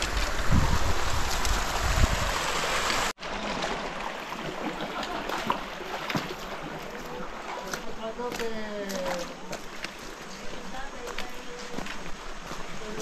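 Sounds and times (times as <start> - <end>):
wind buffeting microphone: 0.0 - 3.1
river water over stones: 0.0 - 13.0.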